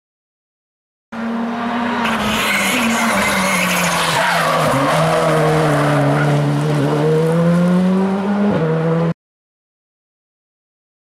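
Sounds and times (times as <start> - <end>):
rally car engine accelerating: 1.2 - 9.2.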